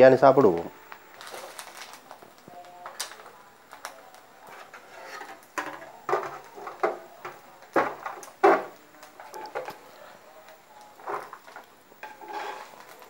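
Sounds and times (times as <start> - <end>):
utensils clattering against pot: 4.4 - 9.8, 11.0 - 13.0.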